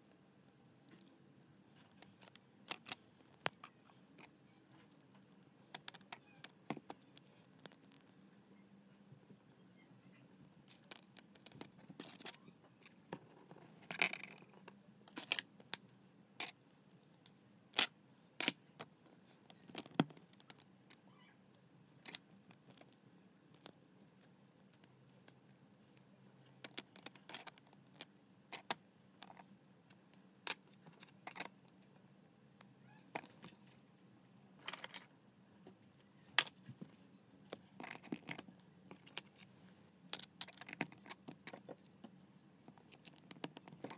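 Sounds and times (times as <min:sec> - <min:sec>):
faint steady hum: 0:00.0 - 0:43.9
plastic bricks clicking and rattling: 0:26.6 - 0:29.4, 0:40.1 - 0:41.8, 0:42.7 - 0:43.9.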